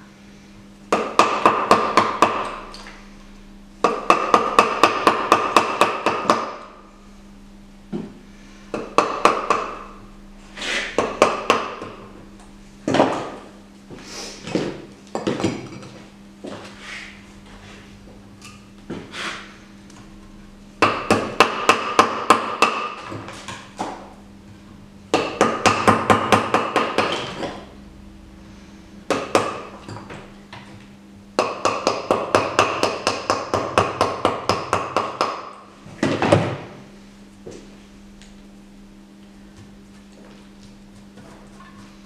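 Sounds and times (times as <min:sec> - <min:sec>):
mallet striking chisel: 0:00.9 - 0:02.6, 0:03.8 - 0:06.6, 0:08.8 - 0:09.9, 0:20.8 - 0:23.1, 0:31.4 - 0:35.5.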